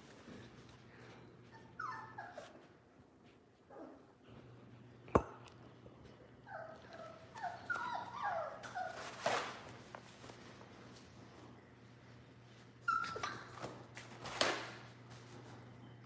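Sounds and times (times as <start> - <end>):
puppies whimpering: 1.5 - 2.6, 6.5 - 9.3.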